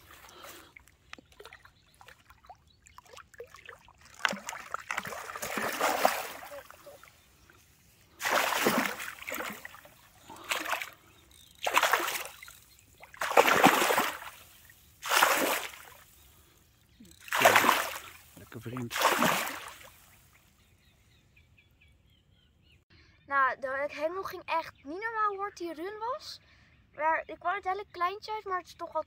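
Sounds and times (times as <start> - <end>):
water splashing: 0.0 - 16.4, 17.1 - 20.4.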